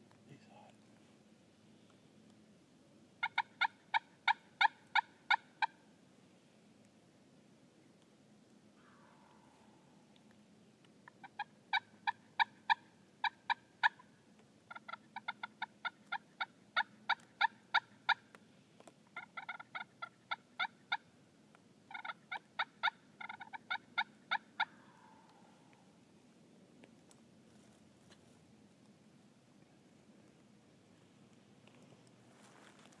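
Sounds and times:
turkey clucks: 3.2s - 5.8s, 11.0s - 18.4s, 19.1s - 21.1s, 21.9s - 25.8s
distant turkey gobble: 3.2s - 5.9s, 8.7s - 10.1s, 11.0s - 18.4s, 19.1s - 21.1s, 21.9s - 26.0s.

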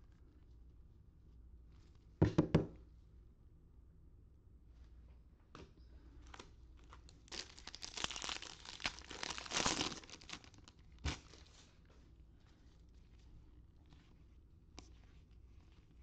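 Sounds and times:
card wrapper crinkling and tearing: 6.8s - 11.6s.

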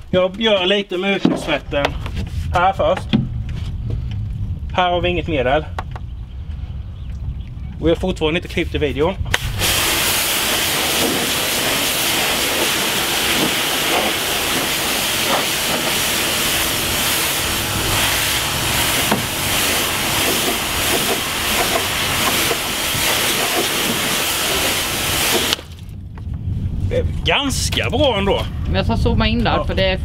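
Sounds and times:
pressure washer spraying: 9.3s - 25.7s.

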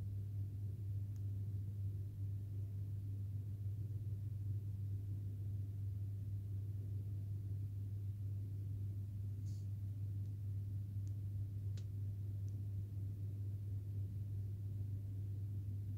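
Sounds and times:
steady low hum: 0.0s - 15.9s
faint tick: 11.0s - 12.6s.

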